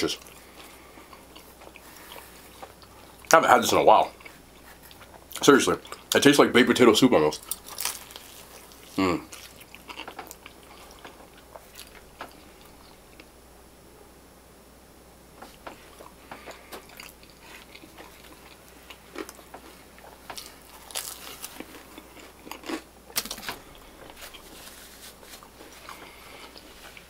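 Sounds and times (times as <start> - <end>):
person biting and chewing: 7.4 - 13.0, 15.6 - 27.0.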